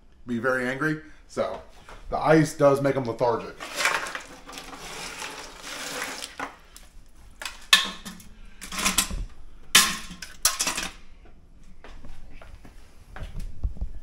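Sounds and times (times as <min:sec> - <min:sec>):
crabs clattering in metal pot: 0:03.6 - 0:06.6, 0:07.4 - 0:09.1, 0:09.8 - 0:11.0
hands rummaging through ice: 0:03.6 - 0:06.6.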